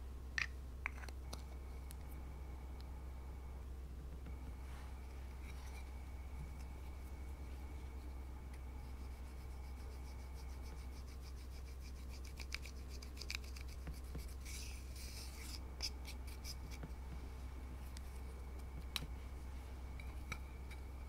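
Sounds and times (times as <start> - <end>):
spatula scraping powder: 8.8 - 16.9.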